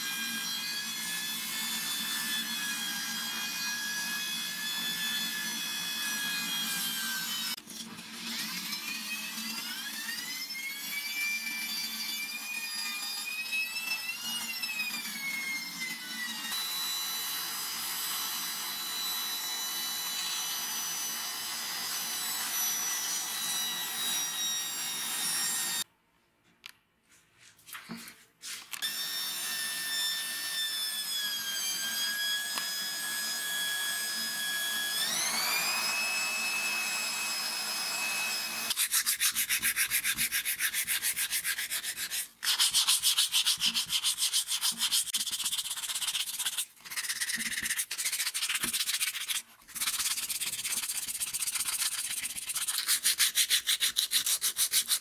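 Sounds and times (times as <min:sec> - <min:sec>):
power tool motor whine: 0:08.2 - 0:25.8, 0:28.8 - 0:38.8.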